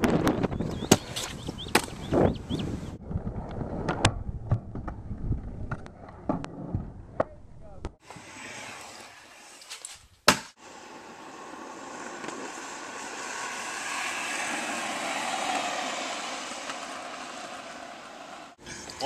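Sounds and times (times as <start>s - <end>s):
scooter wheels rolling on asphalt: 8.0s - 19.0s.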